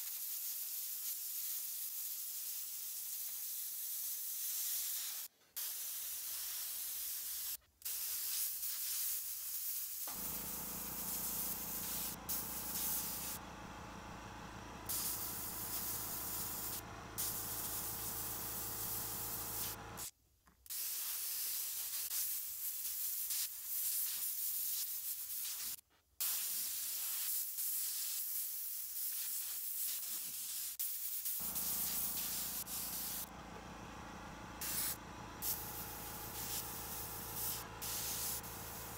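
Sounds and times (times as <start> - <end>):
airbrush hissing: 0.0 - 13.6, 14.8 - 20.1, 20.7 - 33.3, 34.6 - 38.9
steady hum: 10.1 - 20.0, 31.4 - 38.9.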